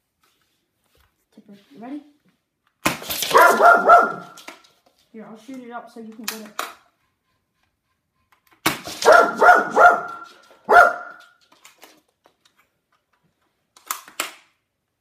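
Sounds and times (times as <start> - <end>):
dog barking excitedly: 3.2 - 4.5, 8.9 - 11.4.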